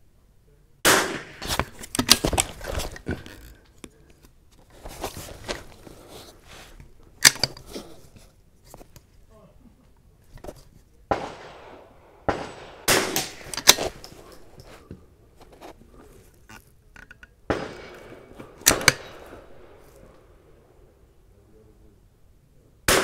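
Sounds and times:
rifle shots: 0:00.8 - 0:02.5, 0:11.1 - 0:14.0, 0:17.5 - 0:20.4.

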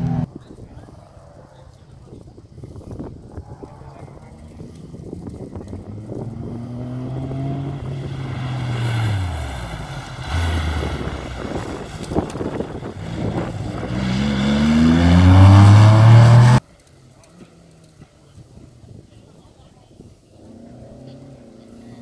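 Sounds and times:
car engine accelerating: 0:03.4 - 0:16.6.

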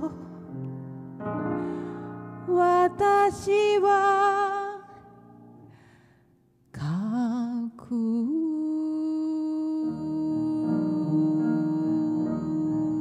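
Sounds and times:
woman singing a slow ballad: 0:00.0 - 0:00.6, 0:02.0 - 0:05.6, 0:06.7 - 0:13.0
piano chords: 0:00.0 - 0:05.7, 0:09.7 - 0:13.0.

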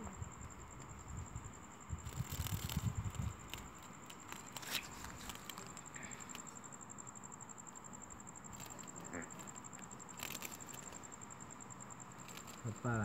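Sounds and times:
cricket trilling: 0:00.0 - 0:13.0.

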